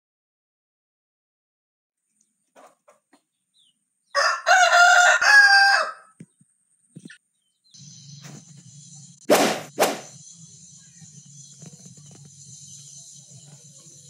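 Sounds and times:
rooster crowing: 4.1 - 6.2.

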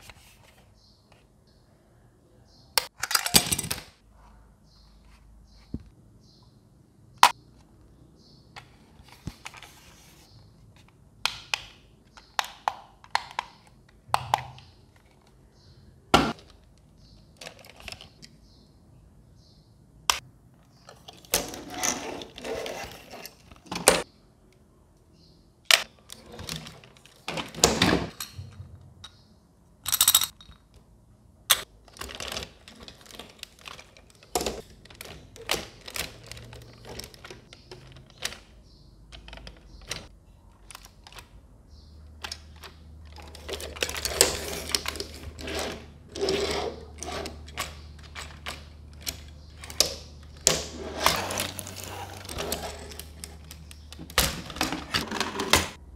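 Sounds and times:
plastic toy parts clicking and rattling: 2.8 - 4.0, 16.3 - 18.4, 29.8 - 30.8, 31.5 - 41.4, 42.2 - 55.8.

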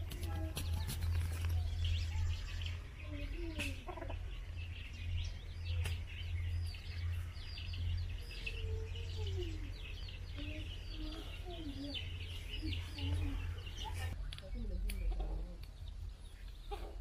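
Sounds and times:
small birds chirping: 0.0 - 17.0
steady low hum: 0.0 - 17.0.

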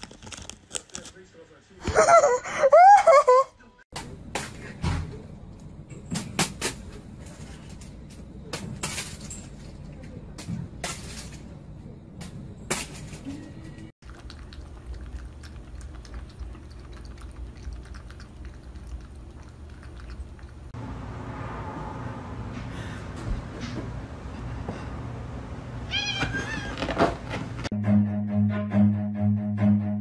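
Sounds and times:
steady low hum: 4.0 - 25.9.

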